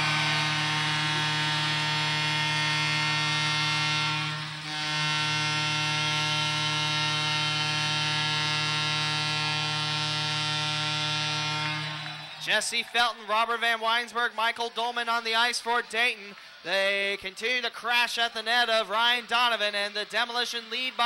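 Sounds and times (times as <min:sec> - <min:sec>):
arena goal horn buzzing: 0:00.0 - 0:12.8.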